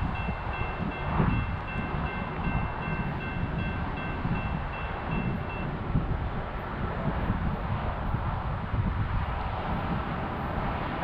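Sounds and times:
distant crossing bell ringing: 0.0s - 5.8s.

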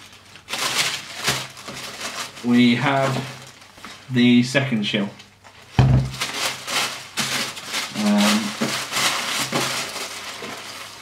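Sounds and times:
tissue paper rustling in box: 0.0s - 4.4s, 5.6s - 11.0s
dull thump: 5.8s - 6.2s
person humming: 8.0s - 8.5s.

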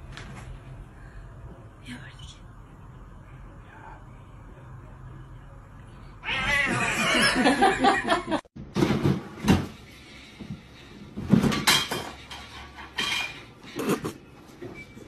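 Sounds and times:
cat yowling: 6.2s - 7.2s.

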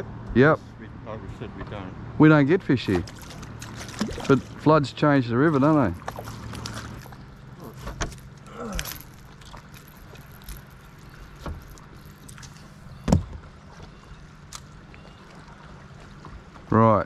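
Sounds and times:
boat motor humming: 0.0s - 17.0s
gear knocking in boat: 5.4s - 14.2s.

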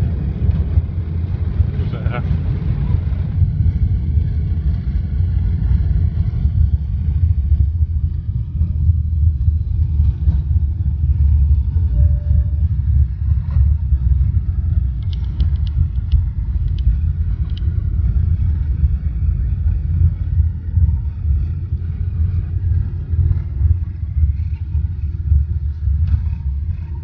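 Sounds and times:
airliner cabin rumble: 0.0s - 27.0s.

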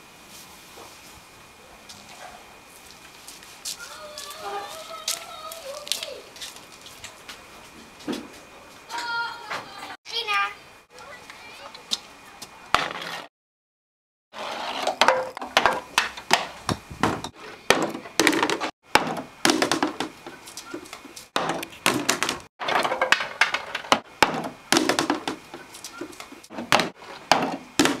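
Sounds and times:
golf balls clacking on wooden run: 21.4s - 25.6s.

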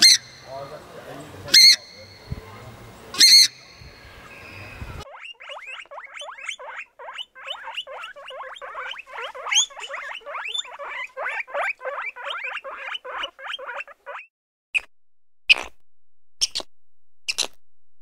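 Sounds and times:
animal squeaky calls: 0.0s - 0.6s, 1.5s - 2.4s, 3.1s - 14.9s.

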